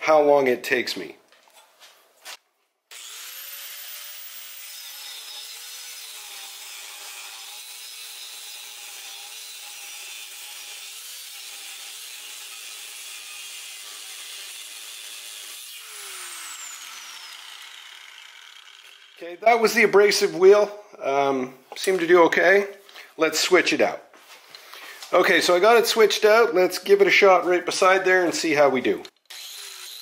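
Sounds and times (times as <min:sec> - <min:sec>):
angle grinder cutting steel: 0:02.9 - 0:19.7, 0:29.1 - 0:30.0.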